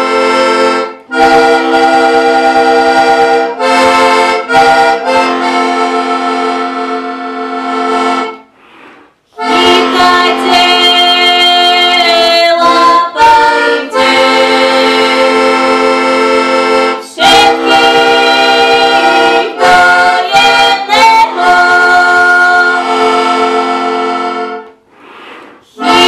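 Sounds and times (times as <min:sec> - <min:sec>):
button accordion playing chords: 0:00.0 - 0:26.0
woman singing: 0:09.4 - 0:15.4, 0:17.0 - 0:23.3, 0:25.8 - 0:26.0.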